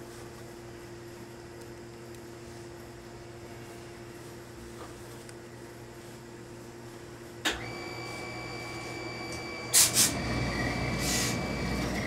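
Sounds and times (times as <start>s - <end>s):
high-pitched whine: 7.5s - 12.0s
steam iron hissing: 8.0s - 12.0s.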